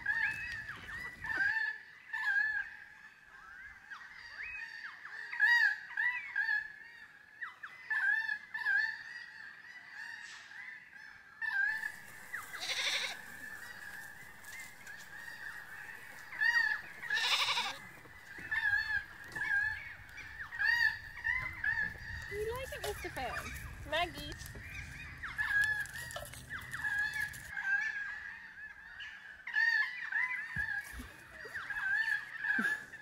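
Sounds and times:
short bird calls: 11.7s - 28.2s
goats bleating: 11.8s - 23.5s.

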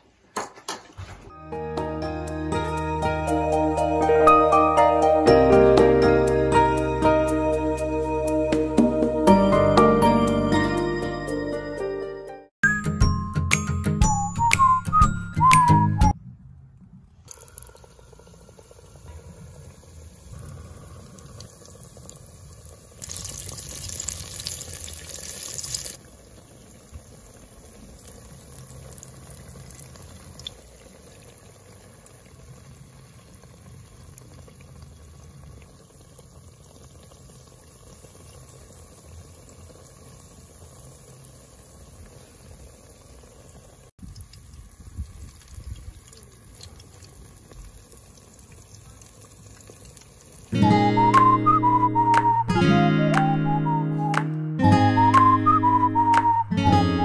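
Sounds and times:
fritters sizzling in hot oil: 17.4s - 50.6s.

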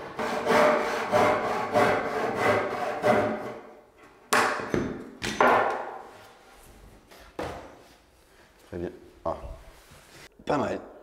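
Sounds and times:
hand sawing wood: 0.0s - 3.7s.

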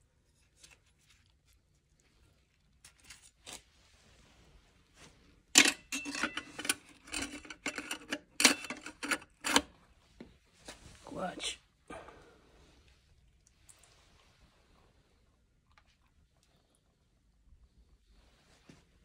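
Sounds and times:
metal clutch plates clinking: 5.6s - 9.3s.

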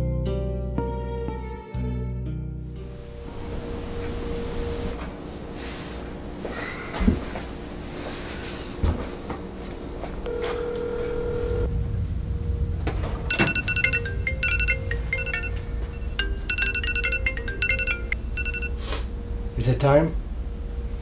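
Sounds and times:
background music with low drone: 0.0s - 4.9s, 11.6s - 19.6s
mobile phone ringtone: 10.3s - 11.6s, 13.3s - 18.8s.

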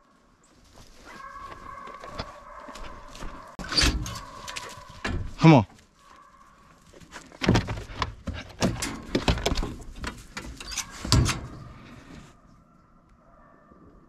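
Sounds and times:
metal box knocking and rattling: 7.4s - 10.2s.

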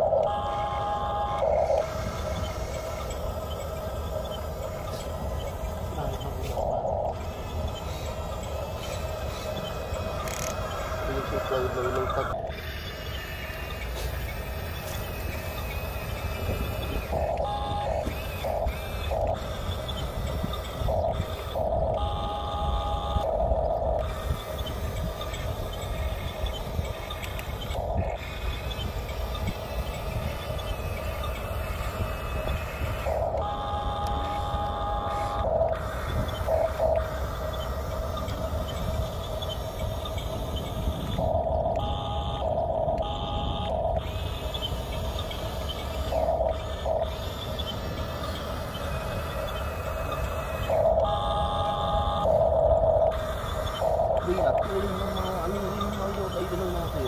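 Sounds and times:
toy bulldozer motors whining: 0.0s - 57.0s.

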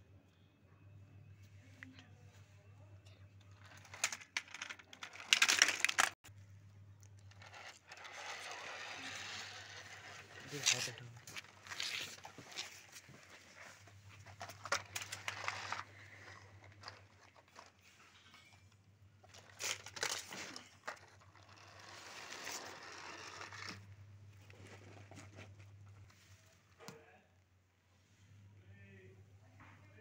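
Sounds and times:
plastic toys clattering: 3.4s - 6.3s, 7.0s - 23.9s.

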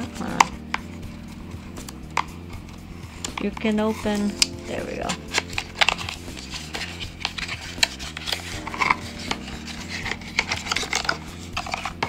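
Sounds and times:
cardboard rubbing and scraping: 5.0s - 12.0s.

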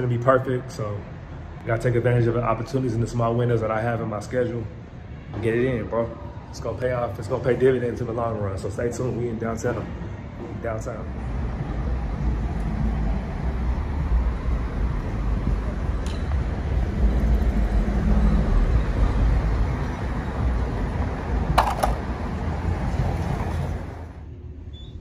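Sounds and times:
car engine and road noise: 9.9s - 24.8s.

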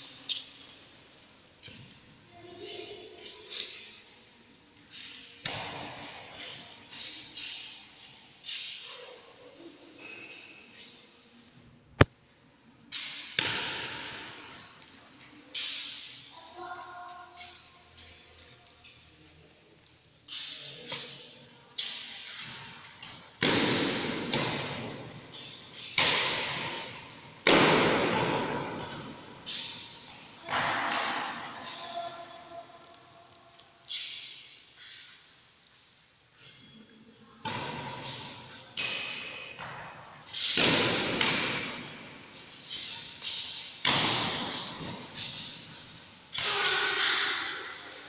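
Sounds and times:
rackets hitting shuttlecock: 4.9s - 8.9s, 12.9s - 14.5s, 21.8s - 31.9s, 37.4s - 48.0s.

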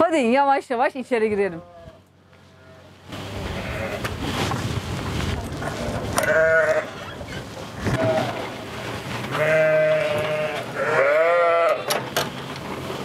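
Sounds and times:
sheep bleating: 9.3s - 11.9s.

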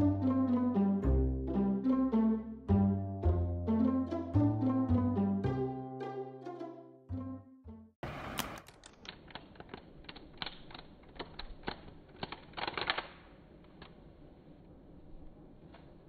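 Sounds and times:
playing cards shuffling: 8.1s - 14.1s.

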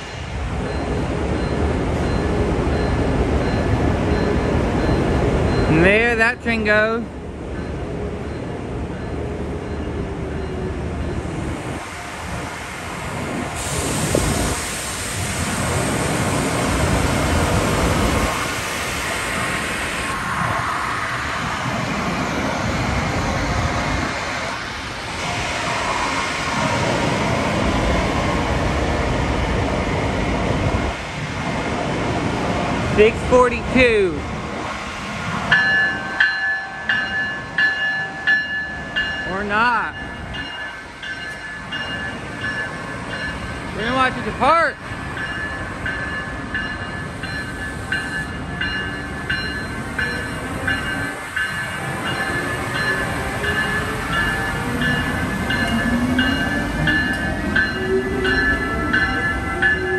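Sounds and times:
locomotive rumbling past: 0.0s - 59.9s
electric locomotive whirring: 34.7s - 59.9s.

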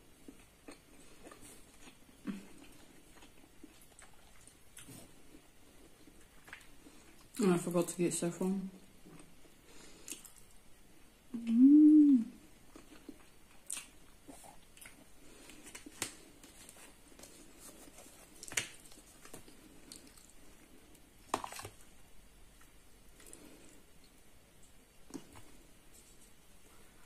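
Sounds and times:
quiet chewing: 0.1s - 7.4s, 9.0s - 10.7s, 12.6s - 21.9s
closed-mouth hum: 11.2s - 12.6s.

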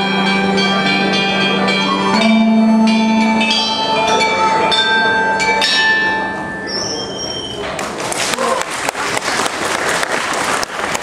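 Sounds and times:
bronze chime bells ringing: 0.0s - 7.6s
low held tone: 0.0s - 7.8s.

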